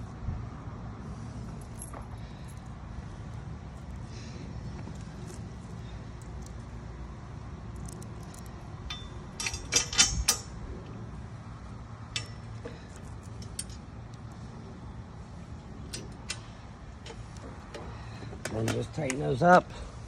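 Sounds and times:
low steady hum: 0:00.0 - 0:20.0
metal bolts and washers clinking: 0:07.7 - 0:11.0, 0:12.1 - 0:14.4, 0:15.8 - 0:19.6.

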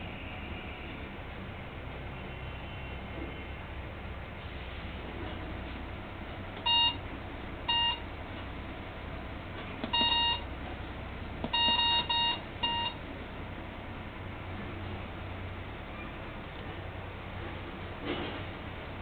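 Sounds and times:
low machine hum: 0:00.0 - 0:19.0
short keypad beeps: 0:06.6 - 0:07.0, 0:07.7 - 0:08.0, 0:09.8 - 0:10.4, 0:11.5 - 0:13.0.

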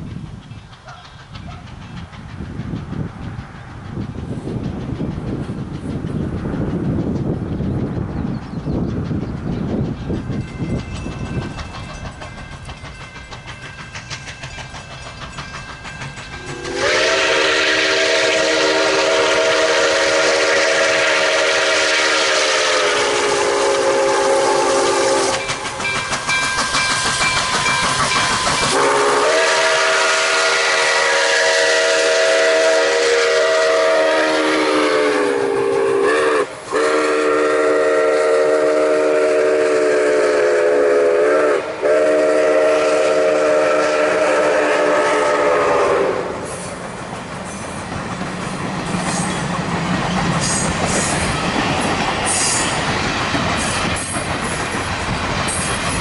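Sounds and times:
train rumble and rail clatter: 0:00.0 - 0:56.0
steam locomotive whistle: 0:16.4 - 0:46.8.

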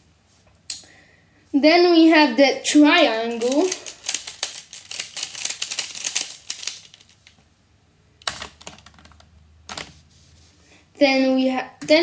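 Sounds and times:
plastic puzzle clicks: 0:03.4 - 0:07.4, 0:08.2 - 0:09.9.

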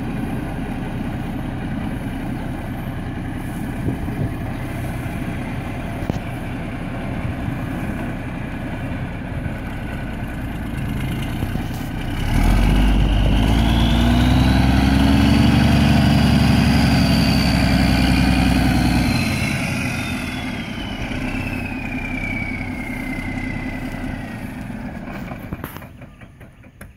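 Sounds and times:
diesel truck engine idling and revving: 0:00.0 - 0:26.9
high engine whistle: 0:16.7 - 0:24.6.

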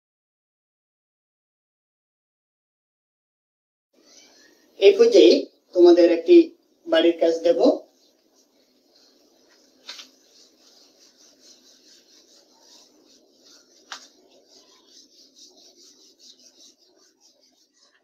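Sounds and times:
duster rubbing on whiteboard: 0:07.4 - 0:18.0.

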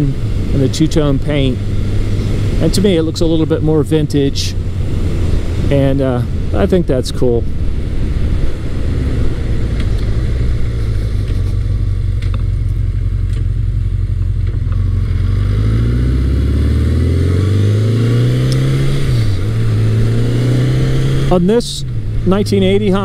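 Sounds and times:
motorcycle engine accelerating: 0:00.0 - 0:23.0
wind noise: 0:04.5 - 0:13.5.

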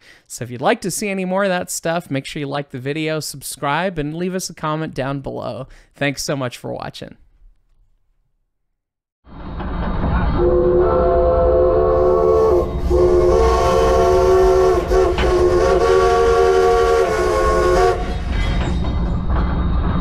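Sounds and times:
steam locomotive whistle: 0:10.3 - 0:18.3.

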